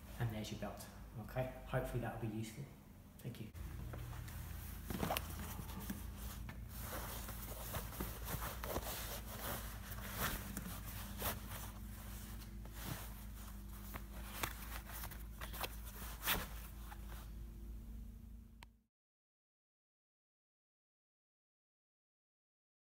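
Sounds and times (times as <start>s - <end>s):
steady low hum: 0.0s - 18.7s
cloth belt rustling: 3.6s - 17.4s.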